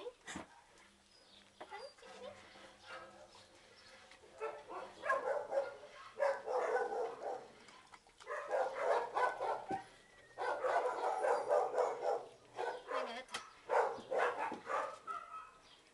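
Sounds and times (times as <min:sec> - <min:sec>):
dogs barking rapidly: 0:04.4 - 0:15.7.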